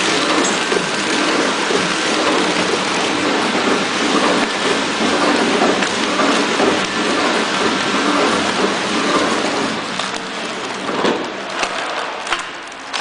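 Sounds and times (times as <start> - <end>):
wrapping machine running: 0.0 - 13.0.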